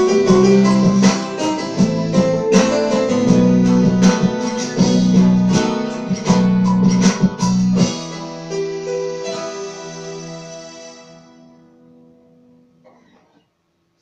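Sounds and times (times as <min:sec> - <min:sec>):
low bass backing: 0:00.0 - 0:08.5.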